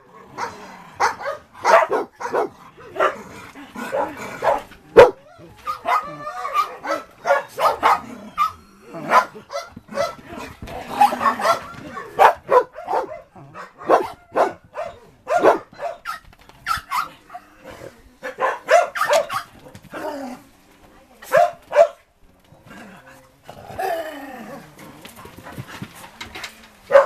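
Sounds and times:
dogs barking: 0.0 - 17.5, 18.2 - 19.9, 21.3 - 22.1
drawn-out dog vocalisation: 0.0 - 20.6, 21.2 - 27.0.

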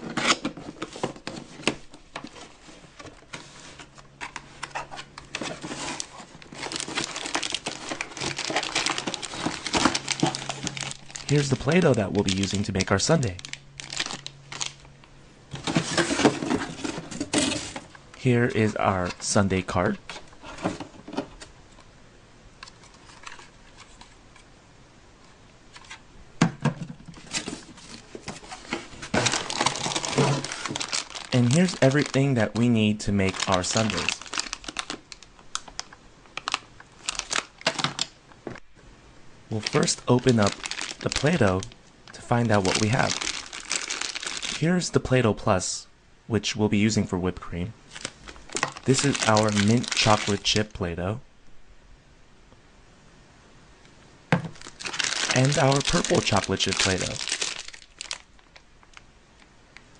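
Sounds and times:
packaging crinkling: 0.0 - 18.0, 27.1 - 38.6, 39.5 - 44.8, 47.9 - 50.7, 54.4 - 59.5.

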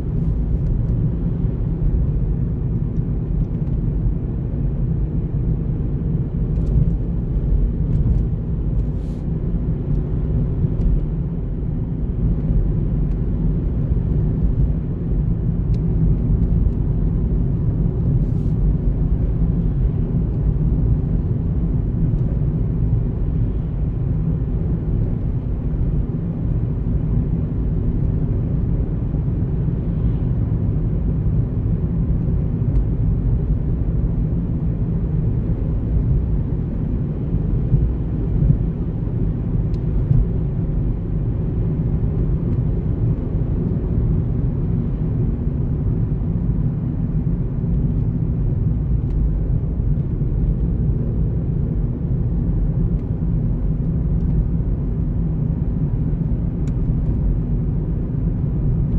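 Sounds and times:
car driving on paved road: 0.0 - 58.9.

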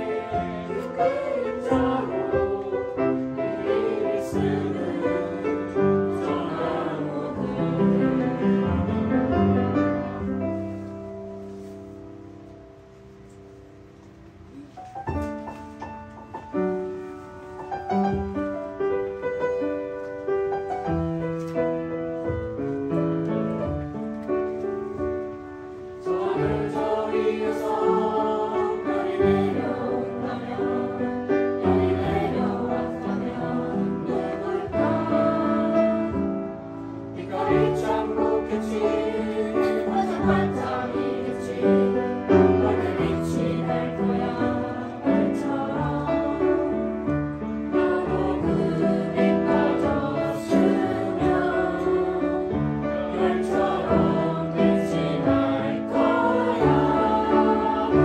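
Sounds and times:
children and adults singing: 0.0 - 8.9, 26.0 - 58.0
upright piano playing: 0.0 - 58.0.

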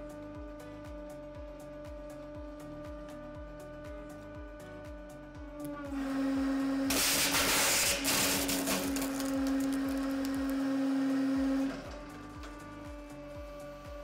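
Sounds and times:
hydraulic press humming: 5.6 - 14.0
wax crunching and crackling: 7.0 - 10.7.

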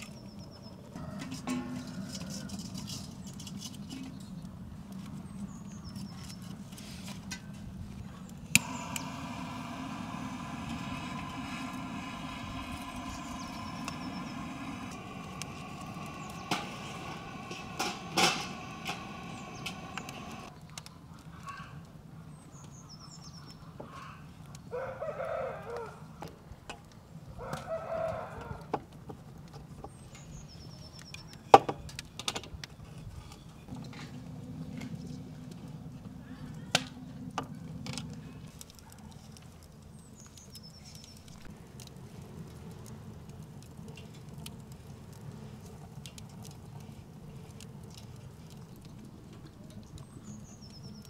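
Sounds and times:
small birds chirping: 3.0 - 6.6, 10.7 - 21.7, 22.3 - 24.7, 29.8 - 33.8, 38.4 - 41.5, 47.3 - 51.0
steady droning tone: 8.6 - 20.5.

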